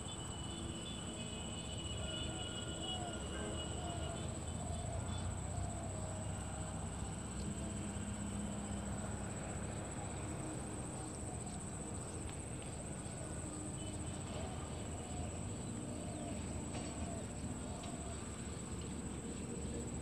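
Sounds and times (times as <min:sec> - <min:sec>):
faint ticks: 0:16.4 - 0:19.8.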